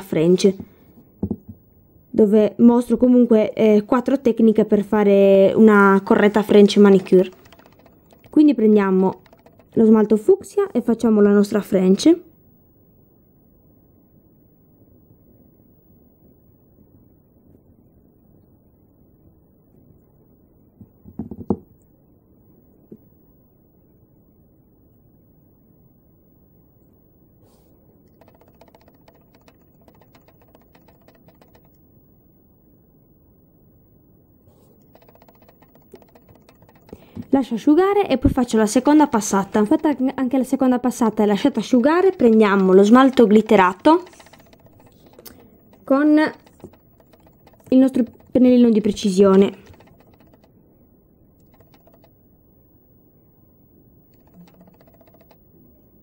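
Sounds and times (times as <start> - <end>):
low room hiss: 0.0 - 56.0
faint low hiss: 10.2 - 28.1.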